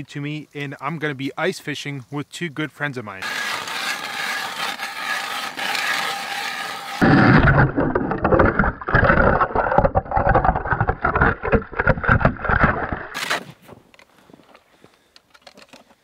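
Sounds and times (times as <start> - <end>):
ice auger boring: 3.2 - 7.1
water churning underwater: 7.0 - 13.2.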